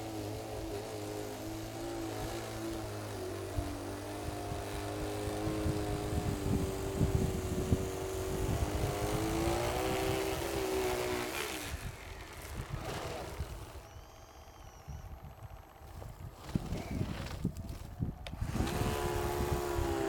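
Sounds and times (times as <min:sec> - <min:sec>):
snow blower motor whining: 0:00.0 - 0:20.0.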